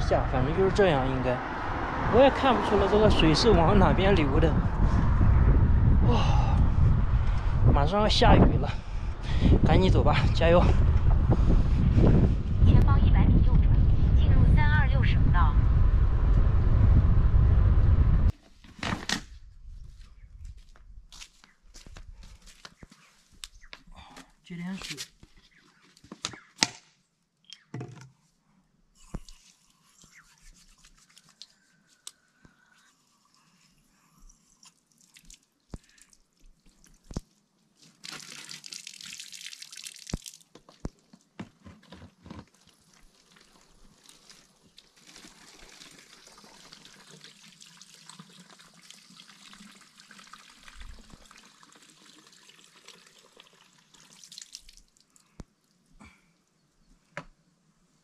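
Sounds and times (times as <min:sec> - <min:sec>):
water from hose splashing into bottle: 0:34.2 - 0:55.4.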